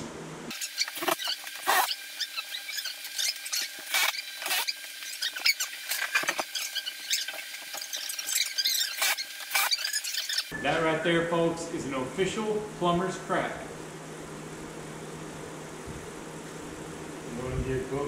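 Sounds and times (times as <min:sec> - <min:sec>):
sped-up squeaky voices: 0:06.4 - 0:10.5.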